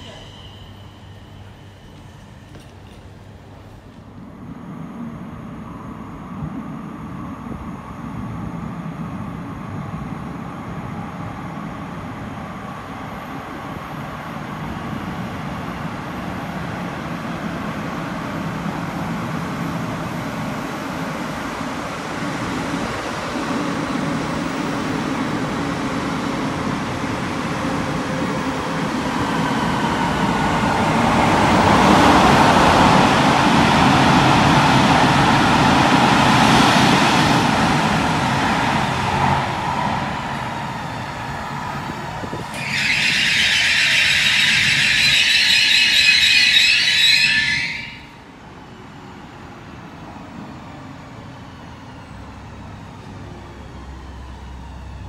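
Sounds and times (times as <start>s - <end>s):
high wavering squeal: 0.0s - 3.0s, 42.4s - 48.3s
electric train whining: 0.0s - 55.0s
train rumble: 0.0s - 55.0s.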